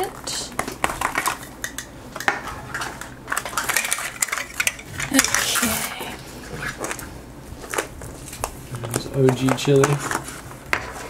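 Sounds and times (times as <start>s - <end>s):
plastic pieces clicking and clattering: 0.8s - 5.9s.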